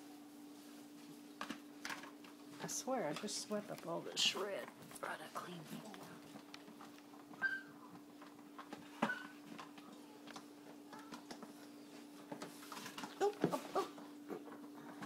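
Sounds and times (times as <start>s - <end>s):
puppy paws clicking and scuffling: 0.9s - 15.0s
puppy cries: 7.4s - 7.8s, 13.2s - 14.0s.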